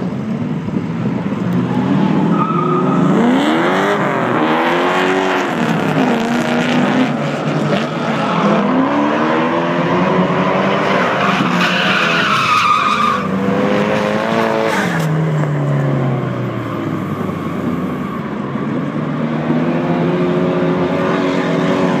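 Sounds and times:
car engines revving high: 0:00.0 - 0:22.0.

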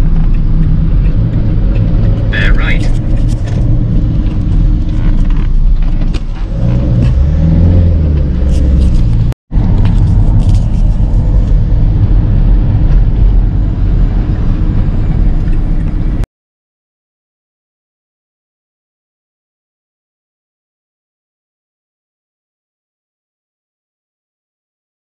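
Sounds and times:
car engine rumble: 0:00.0 - 0:16.3
road noise: 0:00.0 - 0:16.3.

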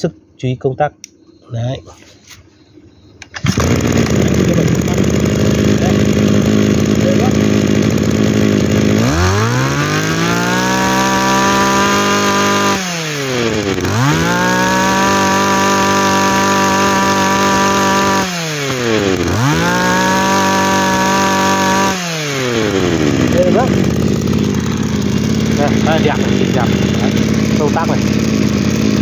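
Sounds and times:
brush cutter engine revving: 0:03.2 - 0:29.0.

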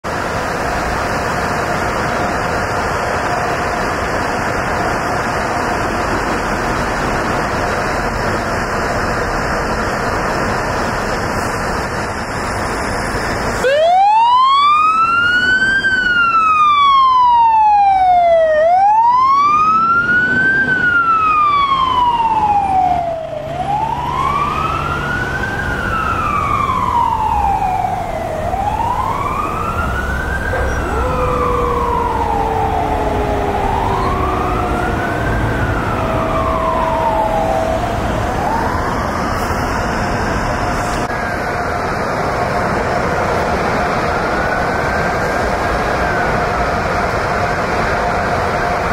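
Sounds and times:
fire truck engine running: 0:00.0 - 0:48.9
siren wailing: 0:12.3 - 0:40.4
lower siren tone sliding down: 0:13.6 - 0:40.4.

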